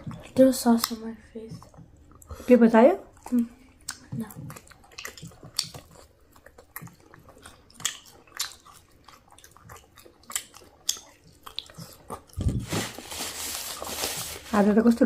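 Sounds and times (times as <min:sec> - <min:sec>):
people chewing and biting: 0:00.0 - 0:02.5, 0:03.1 - 0:14.2
mouth clicks and smacks: 0:03.2 - 0:12.5.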